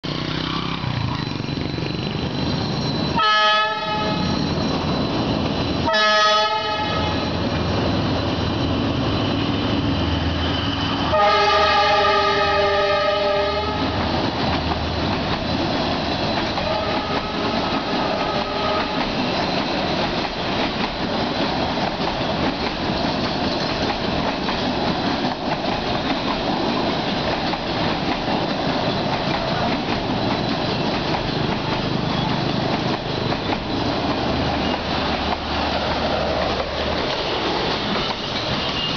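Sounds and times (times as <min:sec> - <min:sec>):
train wheels clattering on rail: 0:00.1 - 0:38.9
locomotive horn blasts: 0:03.2 - 0:04.3, 0:05.9 - 0:07.4, 0:11.1 - 0:14.0, 0:16.6 - 0:19.0.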